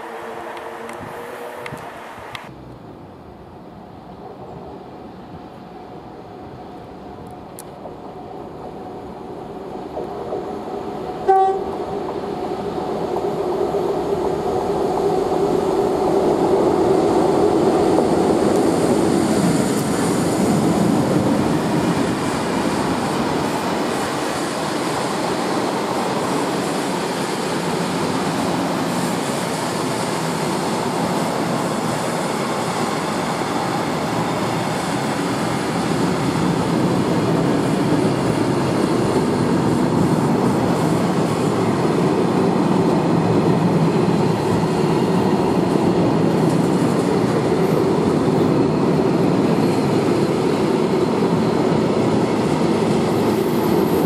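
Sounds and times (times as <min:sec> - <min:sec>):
train horn blast: 0:00.2 - 0:01.9, 0:11.2 - 0:11.7
train wheels rumbling on rails: 0:06.6 - 0:54.0.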